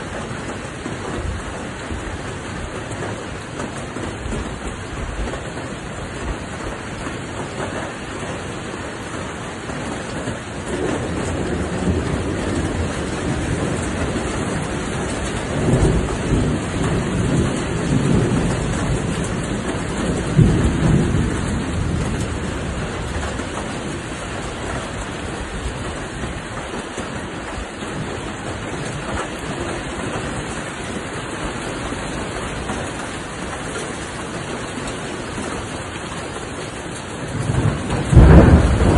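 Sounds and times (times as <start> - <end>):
heavy rain hissing: 0.0 - 38.9
deep rolling rumble: 37.3 - 38.9.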